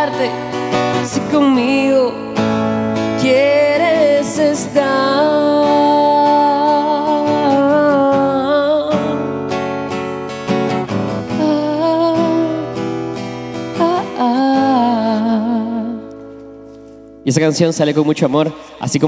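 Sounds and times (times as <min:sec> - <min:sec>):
person singing: 0:00.0 - 0:09.3, 0:11.3 - 0:13.0, 0:13.7 - 0:16.1
acoustic guitar strumming: 0:00.0 - 0:17.3.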